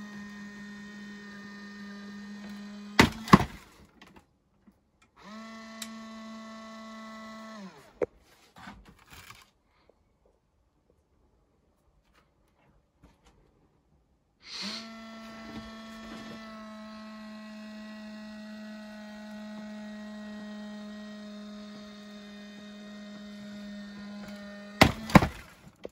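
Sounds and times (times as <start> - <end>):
electric gear motor humming: 0.0 - 3.8, 5.2 - 8.0, 14.6 - 25.9.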